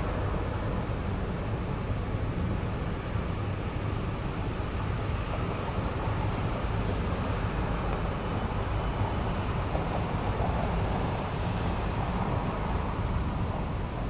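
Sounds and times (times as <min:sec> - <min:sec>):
train rumbling on track: 0:00.0 - 0:14.0.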